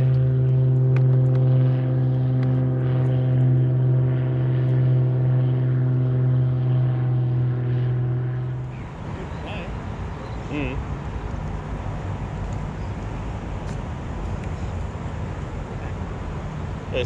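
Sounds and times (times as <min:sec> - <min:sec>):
steady motor drone: 0:00.0 - 0:17.0.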